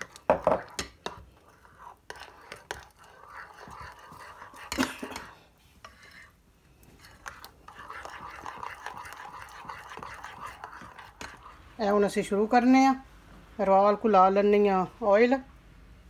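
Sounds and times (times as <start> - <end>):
spoon stirring batter in glass bowl: 0.0 - 12.6.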